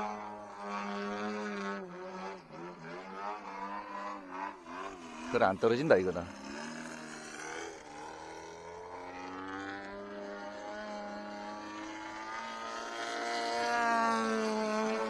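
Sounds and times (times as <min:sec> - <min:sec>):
model plane engine droning: 0:00.0 - 0:15.0.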